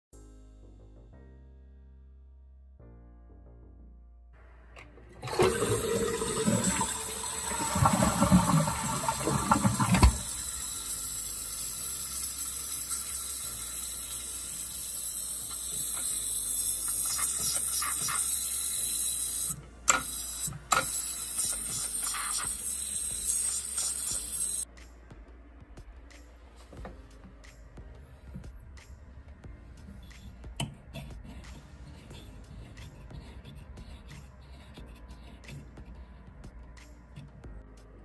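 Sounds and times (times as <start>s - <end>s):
fill valve hissing: 4.8s - 24.6s
toilet tank water rushing: 4.9s - 24.6s.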